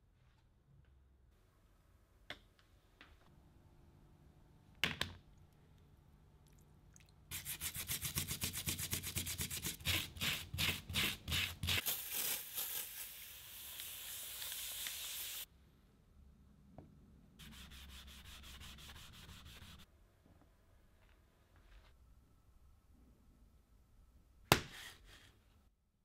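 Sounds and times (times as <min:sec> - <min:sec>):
steady hiss: 0:11.8 - 0:15.5.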